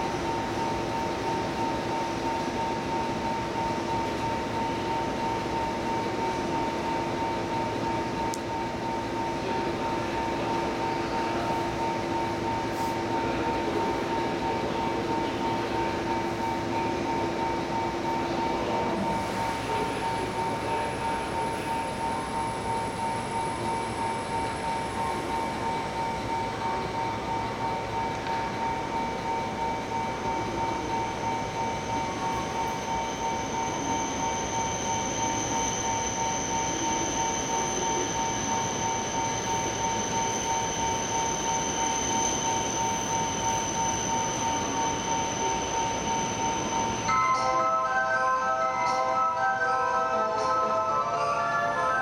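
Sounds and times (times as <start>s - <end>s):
electric train equipment hum: 0.0s - 52.0s.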